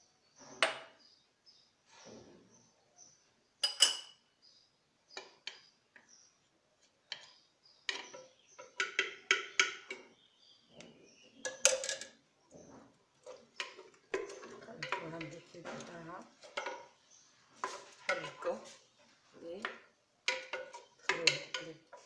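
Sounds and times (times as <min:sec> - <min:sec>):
metal spoon clinking in clay pot: 0:03.6 - 0:04.2, 0:07.1 - 0:10.1, 0:11.4 - 0:12.2, 0:13.2 - 0:17.0, 0:19.6 - 0:22.0.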